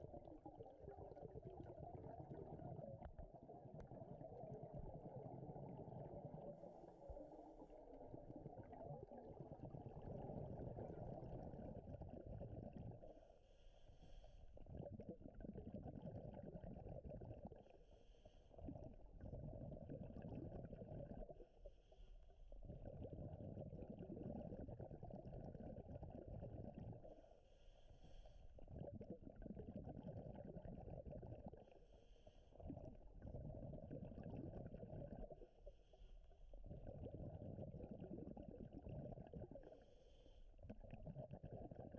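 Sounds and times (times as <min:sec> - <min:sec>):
bubbling exhaled air underwater: 0:00.0 - 0:41.9
hissing inhale through regulator: 0:13.4 - 0:14.6, 0:17.8 - 0:18.6, 0:27.4 - 0:28.6, 0:31.8 - 0:32.7, 0:39.6 - 0:40.6.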